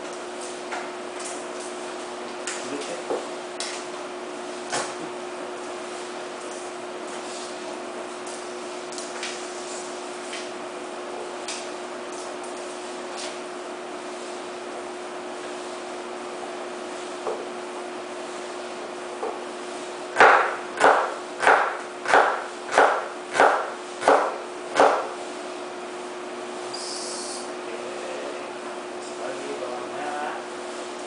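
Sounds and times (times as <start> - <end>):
knife chopping on wooden board: 20.1 - 25.1.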